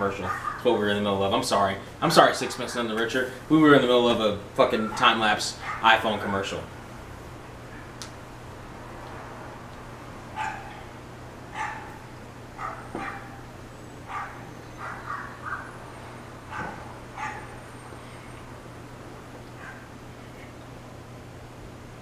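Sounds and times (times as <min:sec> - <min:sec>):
steady low hum: 0:00.0 - 0:22.0
dog barking: 0:00.2 - 0:00.7, 0:04.8 - 0:05.9, 0:10.4 - 0:10.8, 0:11.5 - 0:12.0, 0:12.6 - 0:13.4, 0:14.1 - 0:15.8, 0:16.5 - 0:17.6, 0:19.6 - 0:19.9.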